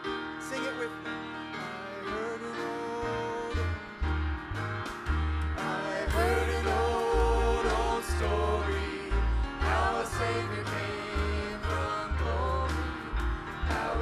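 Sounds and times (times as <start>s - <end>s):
group singing a gospel hymn: 1.6s - 14.0s
pulsing bass line: 3.6s - 14.0s.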